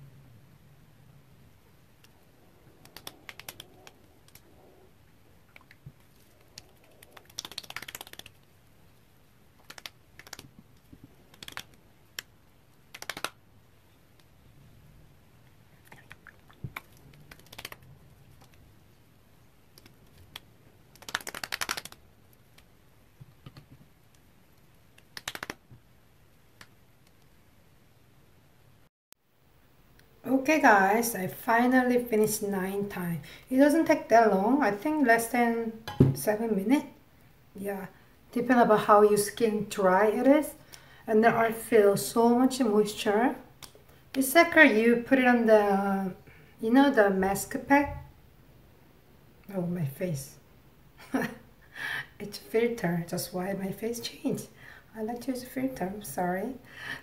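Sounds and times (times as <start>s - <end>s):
hands patting skin: 2.8s - 4.4s, 5.5s - 8.5s, 9.6s - 12.3s, 12.9s - 13.4s, 15.9s - 18.6s, 19.7s - 22.7s, 24.9s - 25.8s.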